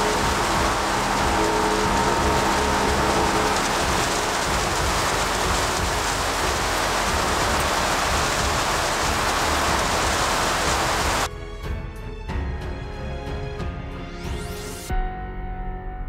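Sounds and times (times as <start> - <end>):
milling machine hissing: 0.0 - 11.3.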